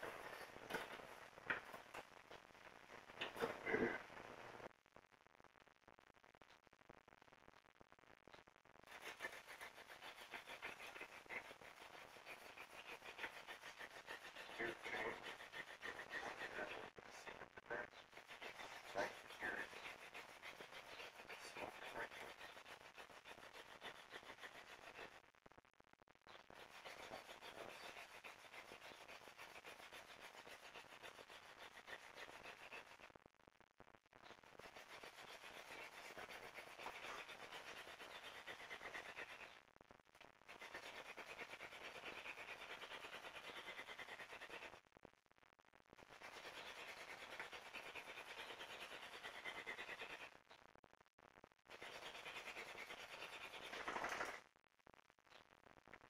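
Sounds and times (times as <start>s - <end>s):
wooden spindle rubbing on wood: 8.8s - 25.2s, 26.4s - 33.0s, 34.5s - 39.5s, 40.5s - 44.8s, 46.1s - 50.4s, 51.7s - 54.4s.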